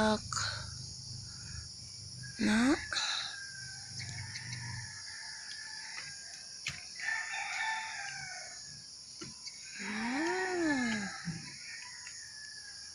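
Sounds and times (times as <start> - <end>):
rooster crowing: 3.4 - 6.4, 7.0 - 8.7.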